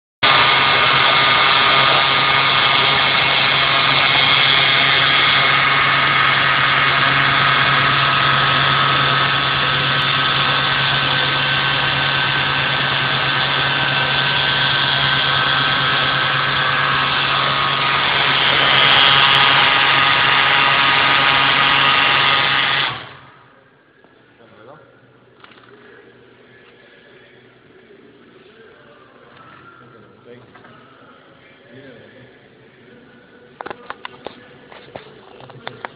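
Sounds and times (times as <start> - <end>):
sewing machine humming: 0.2 - 23.4.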